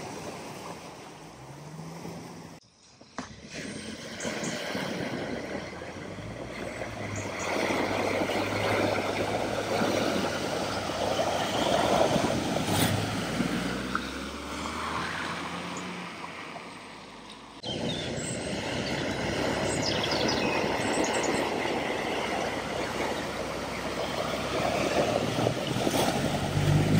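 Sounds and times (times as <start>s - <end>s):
water surging and splashing: 0.0s - 2.6s, 3.3s - 26.9s
vehicle engine running: 5.3s - 26.9s.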